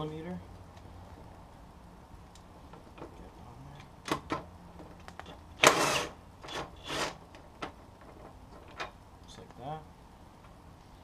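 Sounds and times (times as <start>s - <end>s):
impact wrench bursts: 5.2s - 7.2s.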